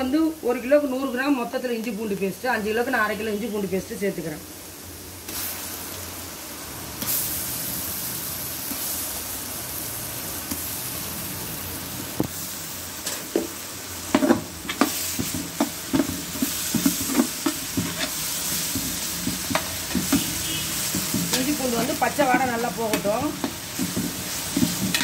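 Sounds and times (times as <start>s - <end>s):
paste sizzling in hot fat: 4.6s - 25.0s
metal ladle scraping pot: 16.3s - 25.0s.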